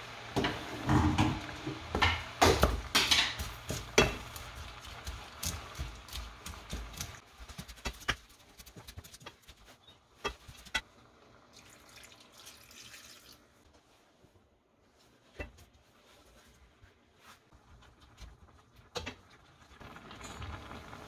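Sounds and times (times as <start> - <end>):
water poured into pan: 11.5 - 13.5.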